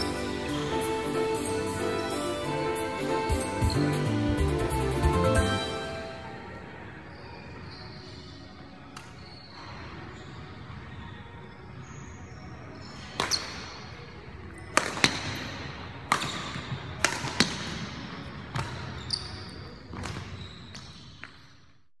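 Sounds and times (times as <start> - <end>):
shoes squeaking on court floor: 3.0 - 4.2, 5.6 - 21.9
racket striking shuttlecock: 13.2 - 13.8, 14.7 - 19.0.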